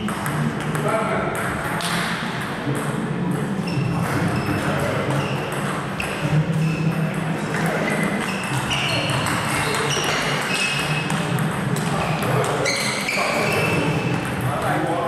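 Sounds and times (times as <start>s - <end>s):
table tennis balls ticking: 0.0s - 15.0s.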